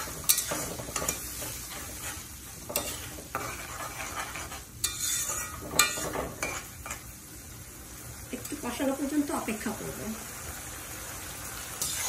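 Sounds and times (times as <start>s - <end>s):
metal spatula scraping pan: 0.0s - 7.0s, 11.8s - 12.0s
spatula knocking pan: 0.0s - 7.0s
spice paste sizzling: 0.0s - 12.0s.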